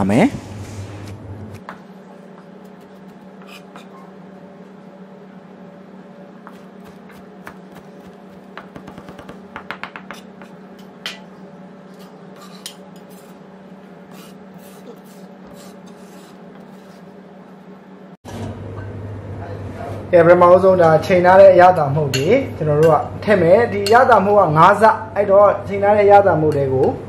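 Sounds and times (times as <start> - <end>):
knife chopping herbs: 6.5 - 10.6.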